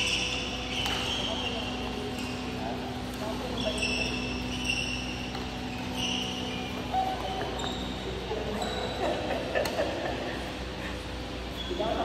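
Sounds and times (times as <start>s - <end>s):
racket hitting shuttlecock: 0.0s - 1.3s, 4.9s - 5.9s
shoes squeaking on court floor: 0.0s - 9.8s, 10.6s - 12.0s.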